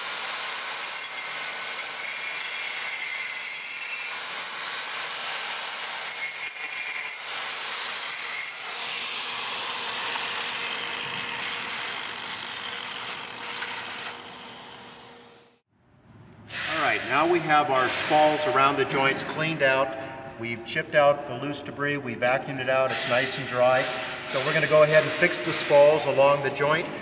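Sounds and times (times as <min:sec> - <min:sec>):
angle grinder cutting concrete: 0:00.0 - 0:15.5
dust extraction vacuum hum: 0:07.2 - 0:15.6.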